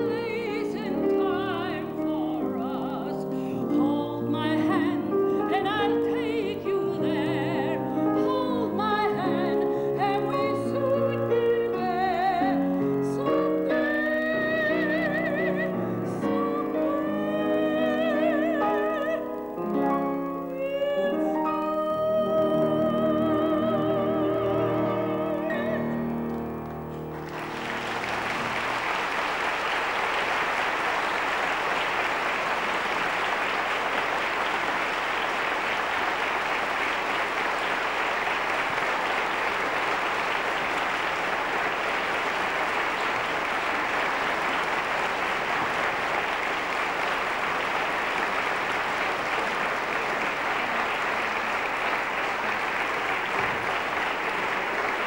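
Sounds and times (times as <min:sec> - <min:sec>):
woman singing with vibrato: 0:00.0 - 0:26.3
piano: 0:00.0 - 0:55.0
audience applauding: 0:23.2 - 0:55.0.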